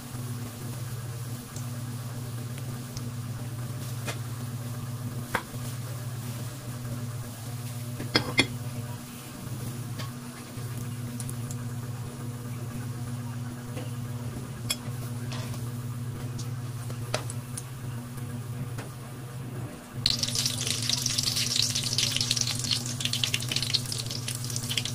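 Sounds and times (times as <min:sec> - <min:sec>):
bread deep-frying in oil: 0:00.0 - 0:13.2, 0:14.0 - 0:24.9
low hum: 0:20.0 - 0:24.9.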